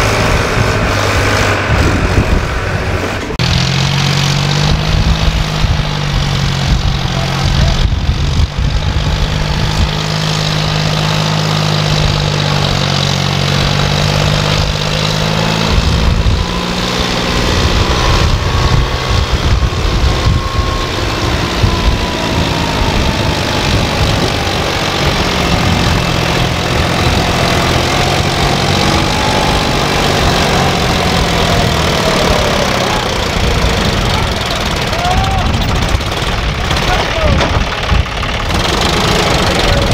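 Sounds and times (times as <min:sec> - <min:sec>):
tractor diesel engine under load: 0:00.0 - 0:39.9.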